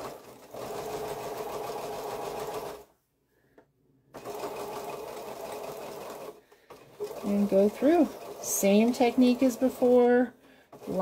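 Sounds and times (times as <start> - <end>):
electric sewing machine stitching: 0.0 - 2.8, 4.2 - 11.0.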